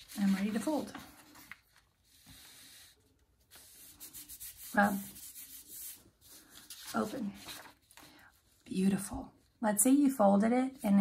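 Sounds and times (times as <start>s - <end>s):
hand rubbing paper: 0.0s - 8.1s
paper folding swish: 0.0s - 8.1s.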